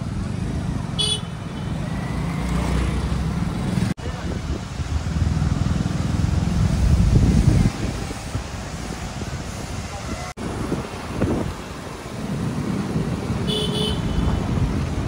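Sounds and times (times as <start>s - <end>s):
passing traffic: 0.0s - 15.0s
wind noise on microphone: 3.6s - 15.0s.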